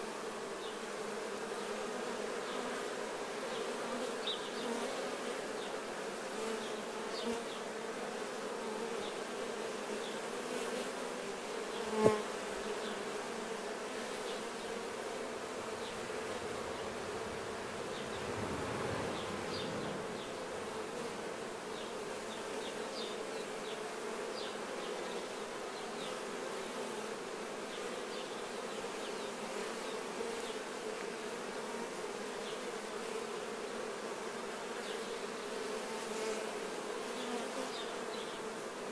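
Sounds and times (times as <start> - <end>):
honeybees buzzing: 0.0 - 38.9.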